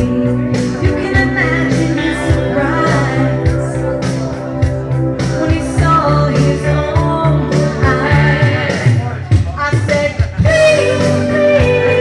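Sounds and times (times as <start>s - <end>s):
woman singing karaoke: 0.0s - 4.0s, 5.3s - 12.0s
rock backing track: 0.0s - 12.0s.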